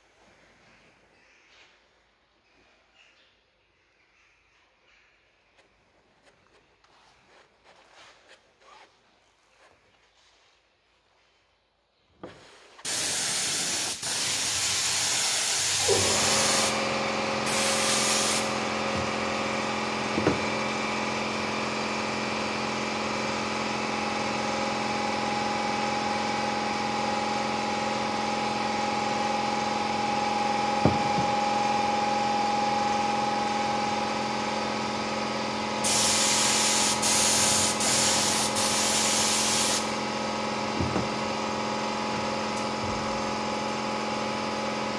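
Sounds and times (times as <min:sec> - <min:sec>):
air compressor humming: 0:12.2 - 0:44.9
spray gun hissing: 0:12.8 - 0:19.3, 0:35.8 - 0:40.0.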